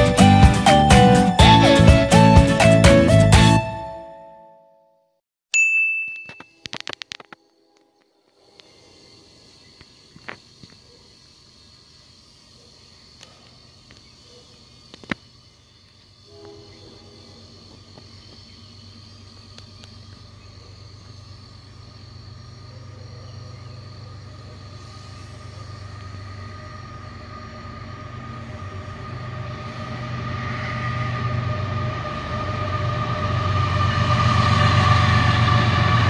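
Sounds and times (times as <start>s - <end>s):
insects chirping: 6.6s - 36.0s
rail noise: 15.8s - 36.0s
diesel locomotive engine drone: 15.9s - 36.0s.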